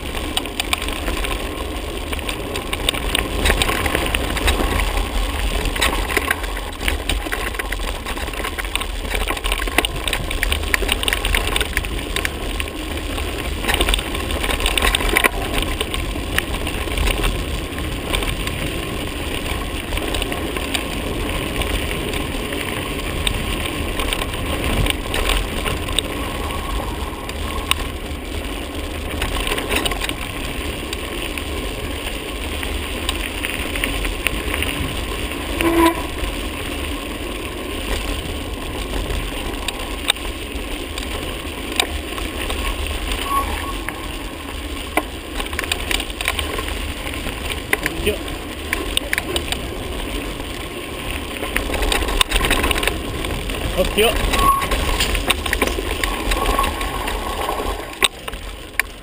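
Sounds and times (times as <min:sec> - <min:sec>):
tyres clicking on stones: 0:00.0 - 0:35.4, 0:37.6 - 0:59.0
wind rumble on microphone: 0:00.0 - 0:59.0.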